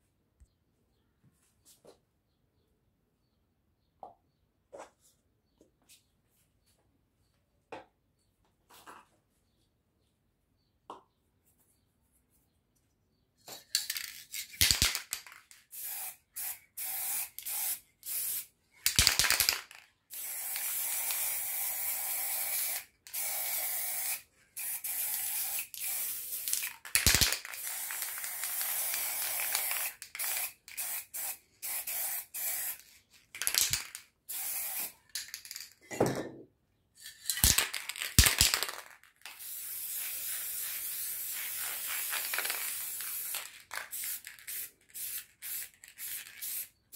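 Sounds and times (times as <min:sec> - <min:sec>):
spray paint cans hissing: 0:13.5 - 0:35.6, 0:37.2 - 0:46.8.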